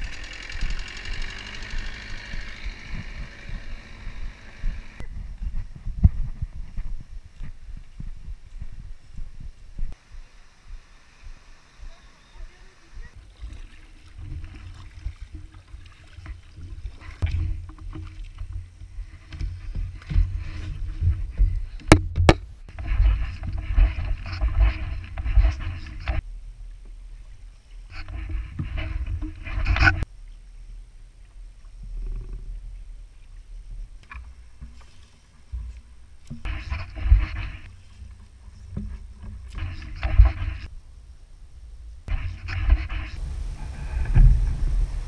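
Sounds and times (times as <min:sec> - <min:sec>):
wind rumble on microphone: 0:02.2 - 0:12.0, 0:41.9 - 0:45.0
water splashing against kayak hull: 0:13.2 - 0:21.2.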